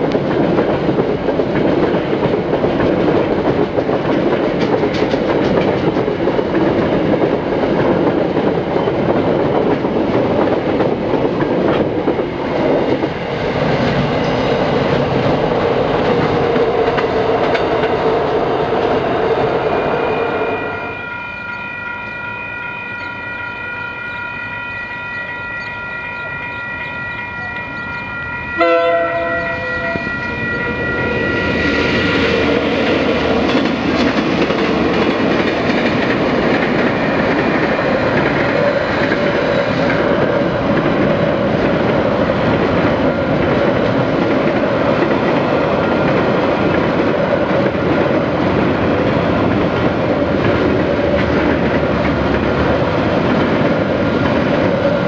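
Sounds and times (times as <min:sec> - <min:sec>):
freight train wagons rumbling and clicking: 0:00.0 - 0:20.4, 0:24.4 - 0:55.0
diesel locomotives passing: 0:00.0 - 0:55.0
level crossing bells ringing: 0:20.6 - 0:33.2.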